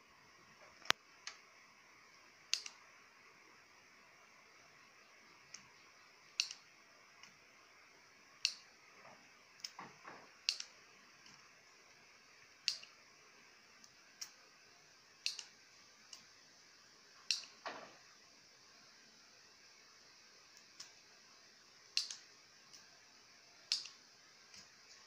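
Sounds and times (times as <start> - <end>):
soldering tool clicks and taps: 2.5 - 2.8, 6.4 - 7.4, 8.4 - 8.7, 9.6 - 11.4, 12.6 - 13.0, 15.2 - 16.3, 17.2 - 17.9, 20.6 - 21.0, 22.0 - 22.9, 23.7 - 24.7.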